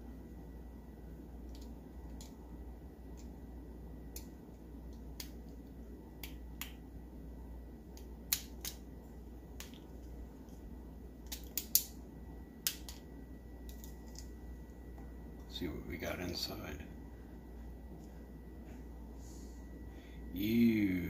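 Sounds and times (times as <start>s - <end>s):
plastic clicks and snaps: 11.2s - 11.9s, 12.6s - 13.0s.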